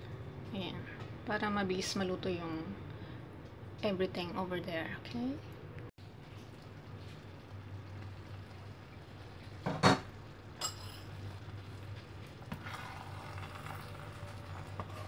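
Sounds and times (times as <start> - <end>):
rice simmering: 6.0 - 15.0.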